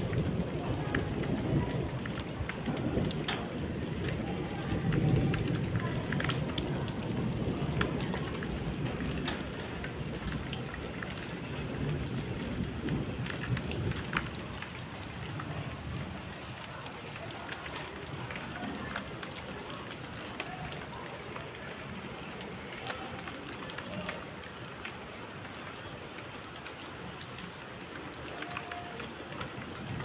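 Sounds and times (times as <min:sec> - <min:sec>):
low rumble of thunder: 0:00.0 - 0:16.4
raindrop taps: 0:00.0 - 0:25.6
steady rain falling: 0:00.0 - 0:30.0.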